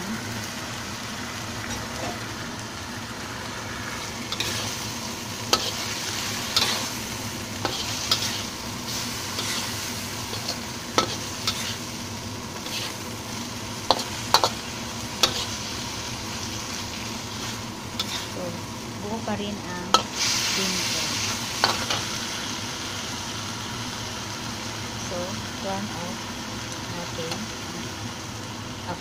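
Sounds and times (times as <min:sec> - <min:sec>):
food sizzling in a wok: 0:00.0 - 0:29.0
metal turner scraping a wok: 0:03.9 - 0:13.1, 0:13.8 - 0:15.8, 0:16.5 - 0:18.5.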